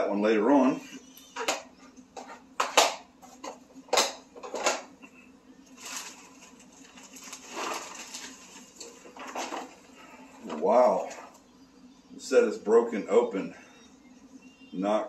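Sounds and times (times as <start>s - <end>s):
plastic bag rustling: 5.7s - 11.3s.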